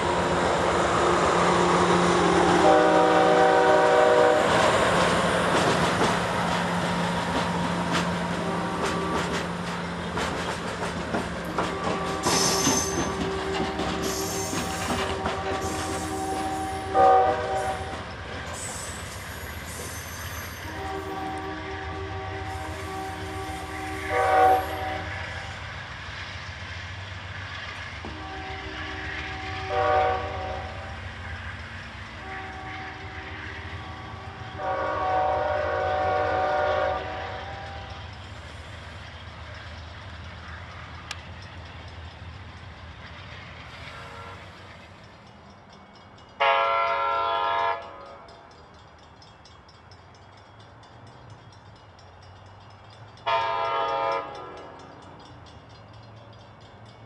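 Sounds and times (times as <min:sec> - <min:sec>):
low rumble of moving train: 0:00.0 - 0:57.0
train air horn blasts: 0:02.2 - 0:04.6, 0:08.4 - 0:09.4, 0:11.6 - 0:18.0, 0:20.5 - 0:25.5, 0:28.1 - 0:31.0, 0:32.2 - 0:38.0, 0:43.9 - 0:44.7, 0:46.4 - 0:48.4, 0:53.2 - 0:54.8.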